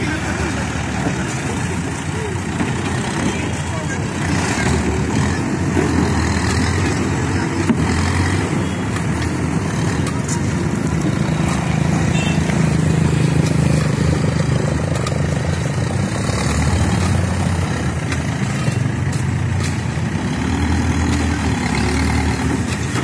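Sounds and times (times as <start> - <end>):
diesel engine running: 0.0 - 23.0
street traffic: 0.0 - 23.0
motorcycle passing: 3.1 - 23.0.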